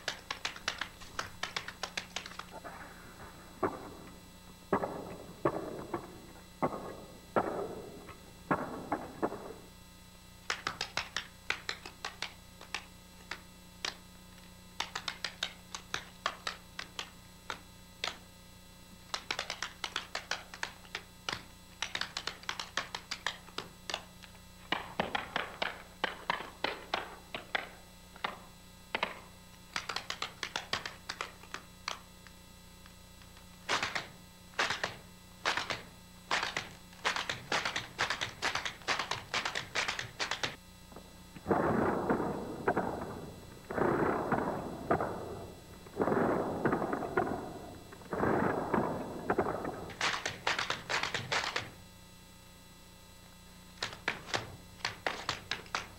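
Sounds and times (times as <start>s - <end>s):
faint steady hum: 0.0s - 55.9s
tap shoes on wooden floor: 53.8s - 55.9s.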